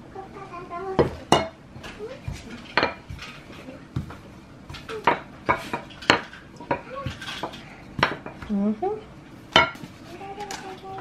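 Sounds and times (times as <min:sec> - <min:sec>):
dishes and utensils clattering: 0:01.0 - 0:08.6, 0:09.5 - 0:11.0.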